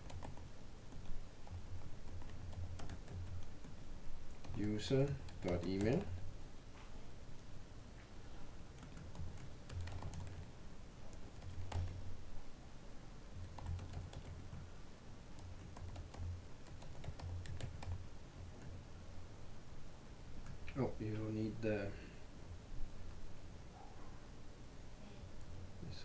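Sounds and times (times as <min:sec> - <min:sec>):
computer keyboard typing: 0:00.0 - 0:06.2, 0:08.7 - 0:10.5, 0:11.1 - 0:12.0, 0:13.4 - 0:14.6, 0:15.4 - 0:18.0.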